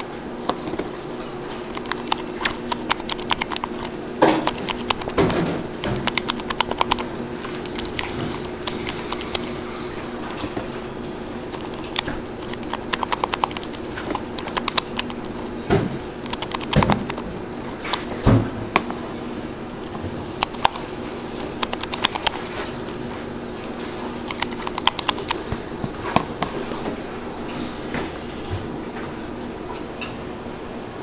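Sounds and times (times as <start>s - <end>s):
spatulas scraping buttercream: 0.0s - 18.2s
steady low hum: 0.0s - 31.0s.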